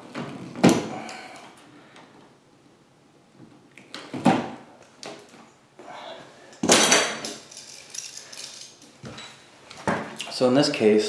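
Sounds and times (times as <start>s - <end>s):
metallic clatter of tools: 6.6s - 9.4s.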